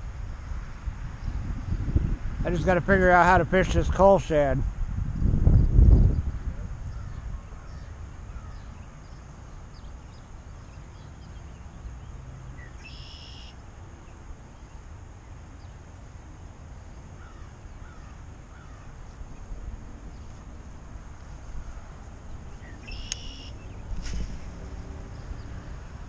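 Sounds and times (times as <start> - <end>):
wind rumbling on microphone: 0.0 - 12.9, 13.7 - 26.0
bird chirps: 6.9 - 14.8, 21.8 - 23.9
high bird call: 12.6 - 13.6, 21.6 - 23.8.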